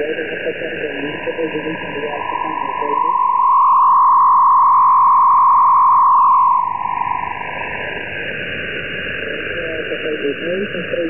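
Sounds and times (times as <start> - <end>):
radio band hiss: 0.0 - 3.6, 9.3 - 11.0
steady radio carrier whistle: 1.2 - 7.7.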